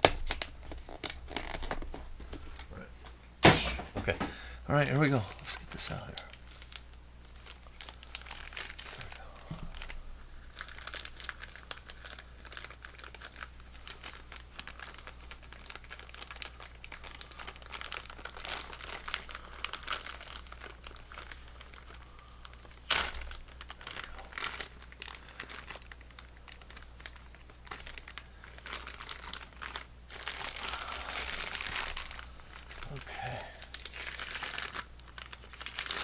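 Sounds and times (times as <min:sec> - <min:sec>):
packaging crinkling and rustling: 0:00.0 - 0:03.2, 0:04.0 - 0:36.0.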